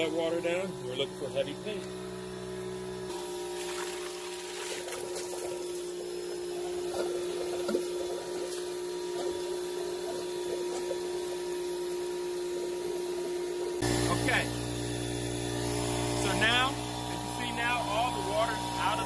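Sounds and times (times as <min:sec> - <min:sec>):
motor hum: 0:00.0 - 0:19.0
water spurting and gurgling: 0:03.1 - 0:11.8.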